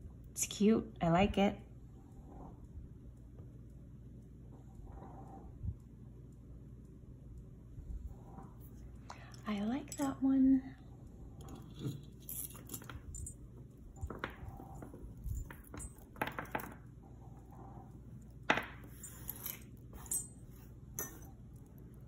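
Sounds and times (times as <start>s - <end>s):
beaded necklace clinking: 11.4s - 16.8s, 18.7s - 21.4s.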